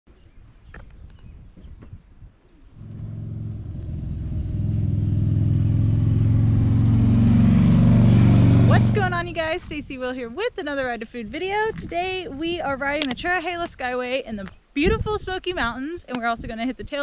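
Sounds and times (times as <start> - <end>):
motorcycle engine approaching: 2.8 - 9.7.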